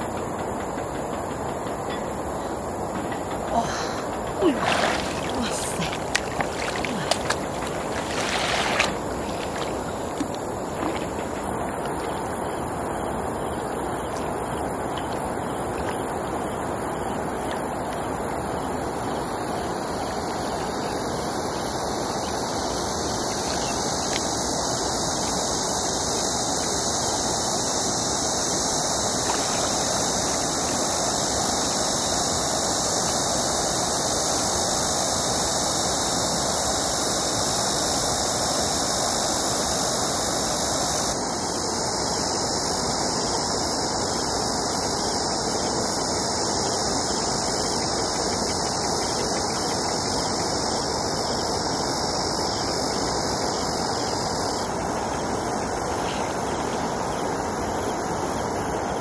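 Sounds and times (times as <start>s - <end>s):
flowing river water: 0.0s - 59.0s.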